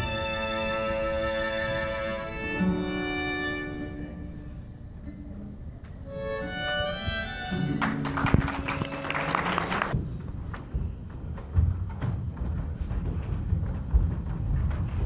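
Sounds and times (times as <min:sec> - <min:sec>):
slow violin melody: 0:00.0 - 0:09.1
audience applauding: 0:07.7 - 0:10.0.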